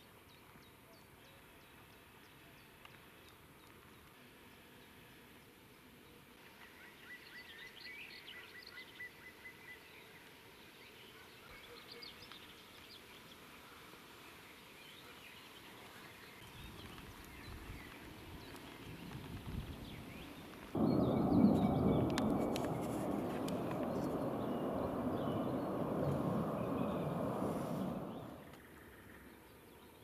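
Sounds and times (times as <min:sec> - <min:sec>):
songbirds chirping: 0:00.2 - 0:30.0
low rumble: 0:20.8 - 0:28.5.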